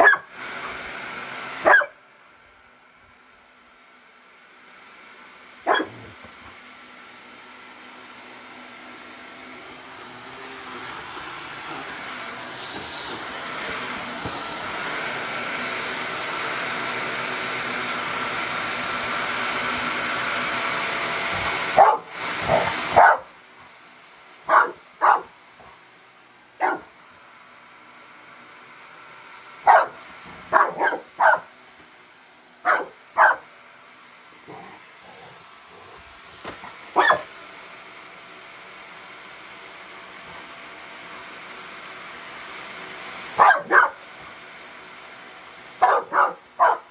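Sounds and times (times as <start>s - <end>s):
dog barking: 0.0s - 0.3s, 1.6s - 2.0s, 5.6s - 6.2s, 21.8s - 23.3s, 24.5s - 25.4s, 26.6s - 26.9s, 29.6s - 31.5s, 32.6s - 33.4s, 37.0s - 37.3s, 43.4s - 44.0s, 45.8s - 46.9s
vacuum cleaner running: 0.0s - 46.9s.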